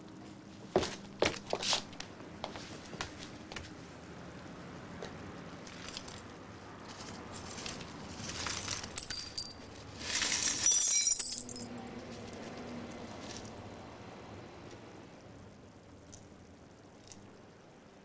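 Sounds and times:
glassy clinking rattle: 8.6 - 9.8, 10.4 - 11.7.

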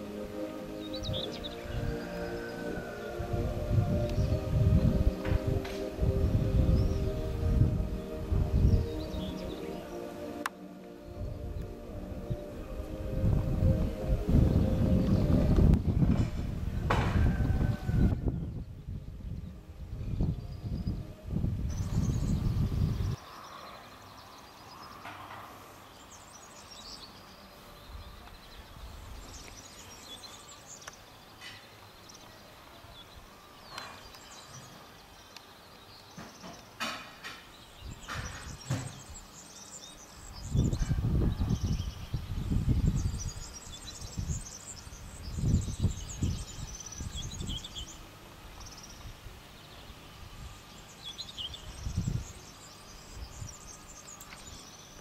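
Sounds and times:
loud low rumbling bursts: 0.0 - 23.2
birds chirping: 0.0 - 55.0.

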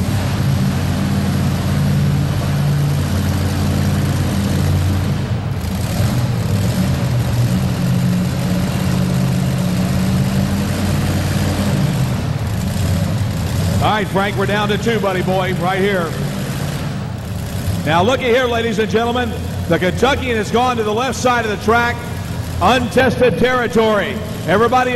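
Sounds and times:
truck engine idling: 0.0 - 24.9.

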